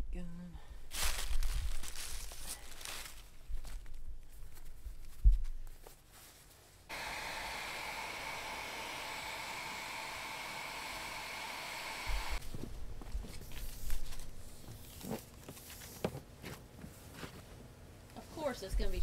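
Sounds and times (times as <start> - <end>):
conduit knocks and rustles: 3.4 - 6.1
heat gun fan whirring: 6.9 - 14.8.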